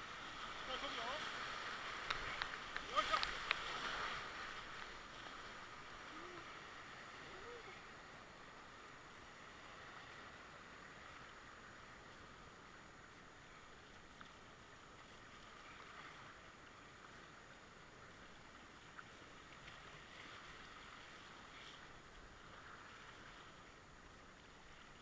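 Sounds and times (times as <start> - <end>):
whitewater river rapids rushing: 0.0 - 8.8.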